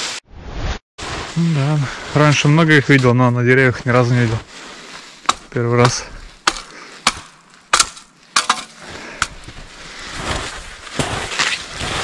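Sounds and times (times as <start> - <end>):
skis moving through snow: 1.0 - 5.6, 8.8 - 12.0
wooden cracks and knocks: 6.4 - 8.8.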